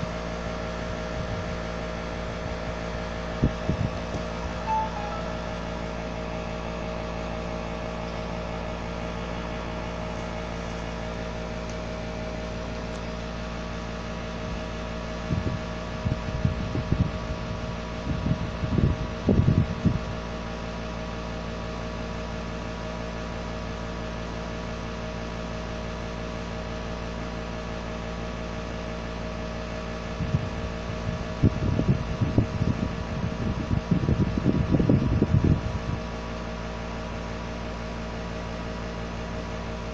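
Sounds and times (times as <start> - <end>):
steady tonal hum: 4.4 - 8.6.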